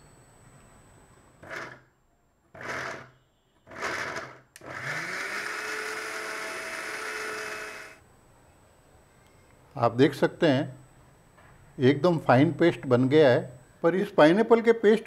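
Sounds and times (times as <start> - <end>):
mixer grinder motor blending: 1.4 - 1.8, 2.6 - 3.1, 3.7 - 8.0.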